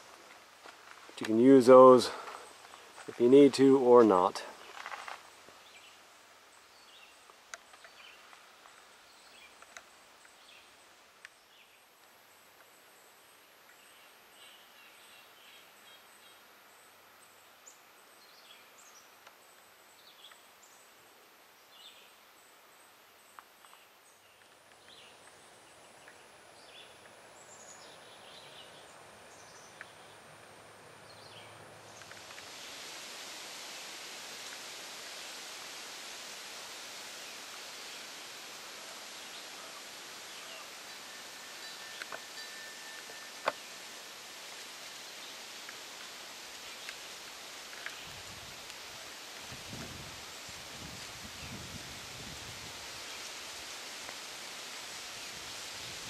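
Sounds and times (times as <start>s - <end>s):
small birds chirping: 1.1s - 11.8s, 23.0s - 32.9s, 37.2s - 49.0s
bird chirping softly: 21.6s - 32.8s, 38.8s - 45.5s.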